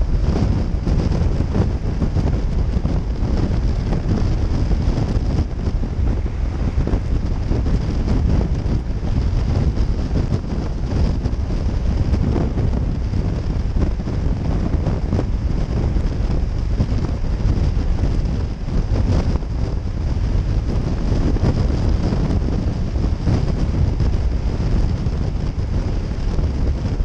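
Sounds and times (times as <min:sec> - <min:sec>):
motorcycle and road noise: 0:00.0 - 0:27.0
wind buffeting microphone: 0:00.0 - 0:27.0.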